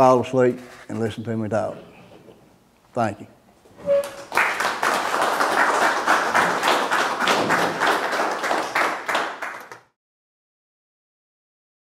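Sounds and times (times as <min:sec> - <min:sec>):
people applauding: 0:03.9 - 0:10.0.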